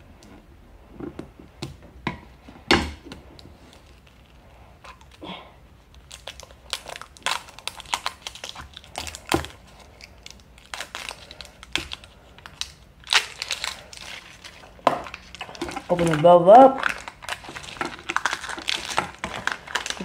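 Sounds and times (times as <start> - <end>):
plastic wrapper crinkling: 5.8 - 20.0.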